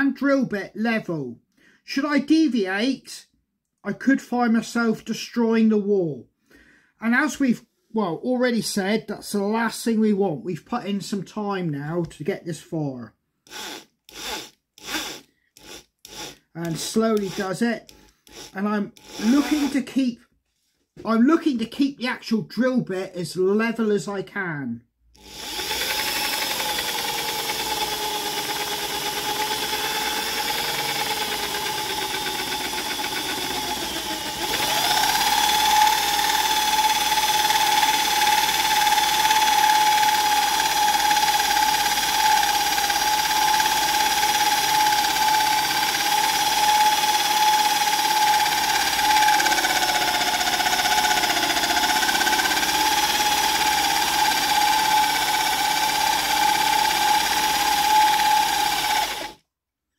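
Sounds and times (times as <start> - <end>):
drill press motor whining: 13.5 - 19.8, 25.2 - 59.4.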